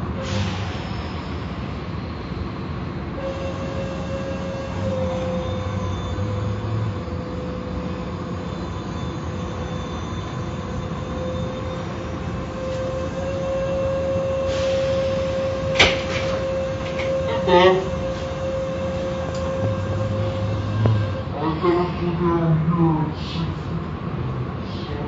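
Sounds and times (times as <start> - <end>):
mid-pitched hum: 15.3 - 25.0
low hum: 16.2 - 24.8.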